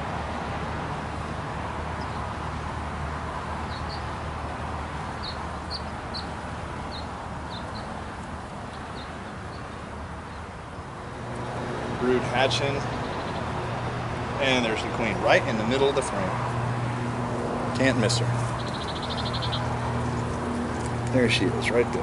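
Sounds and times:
honeybees humming: 2.1s - 22.0s
small bird chirping: 3.6s - 4.1s, 5.2s - 10.4s, 18.4s - 21.0s.

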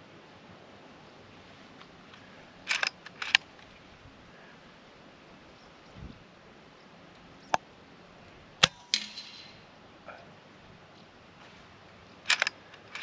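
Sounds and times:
air rifle lever clicks: 2.7s - 3.5s, 12.3s - 13.0s.

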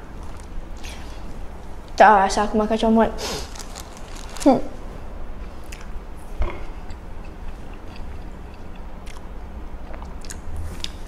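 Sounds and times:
person chewing: 3.4s - 4.5s, 5.6s - 5.9s, 6.8s - 11.0s.

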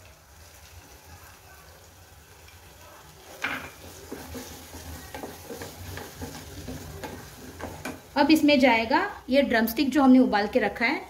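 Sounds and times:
spatula scraping pot: 3.3s - 8.1s.

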